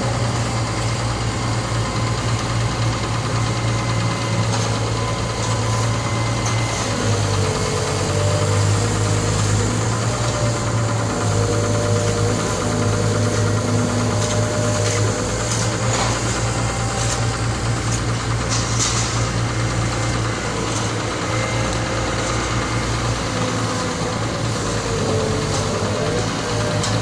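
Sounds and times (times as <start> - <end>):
excavator engine idling: 0.0 - 27.0.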